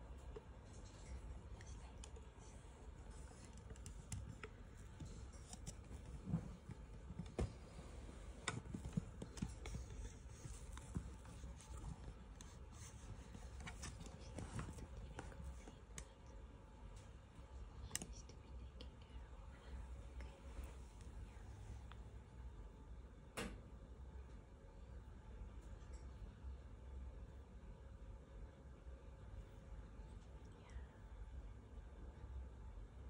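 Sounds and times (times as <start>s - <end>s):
faint irregular clicks: 0.0s - 7.5s, 8.4s - 19.2s
low steady hum: 0.0s - 33.0s.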